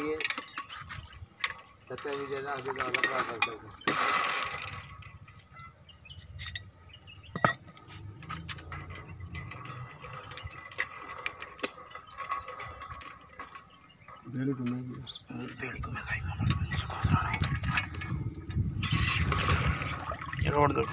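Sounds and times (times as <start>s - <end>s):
metal fittings and tools clicking: 0.0s - 5.6s, 6.2s - 6.7s, 7.3s - 15.1s.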